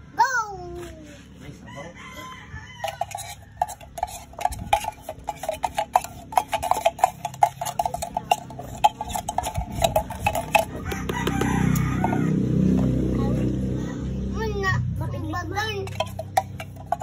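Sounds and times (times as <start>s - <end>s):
metal spoon scraping tin can: 2.8s - 12.3s, 15.8s - 17.0s.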